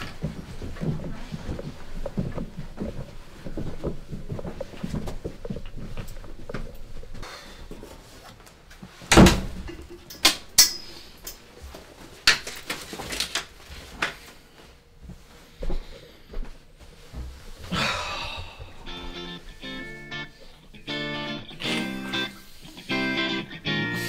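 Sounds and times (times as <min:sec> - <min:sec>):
wooden door shutting with thud: 0:09.1 - 0:09.6.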